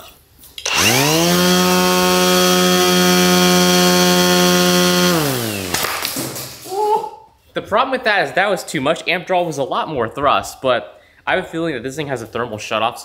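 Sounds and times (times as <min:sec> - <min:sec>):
angle grinder spinning propeller: 0:00.6 - 0:05.9.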